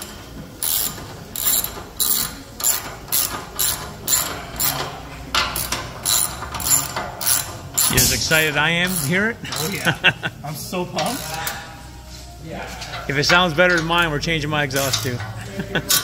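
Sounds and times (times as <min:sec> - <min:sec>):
ratchet wrench clicking: 0:00.0 - 0:10.0, 0:11.0 - 0:11.7, 0:14.7 - 0:16.0.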